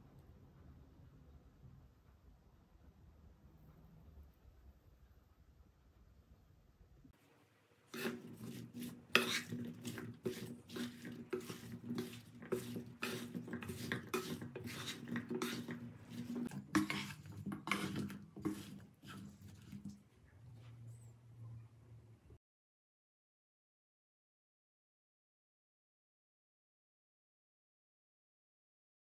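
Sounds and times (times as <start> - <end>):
spatula scraping and knocking pan: 7.9 - 20.0.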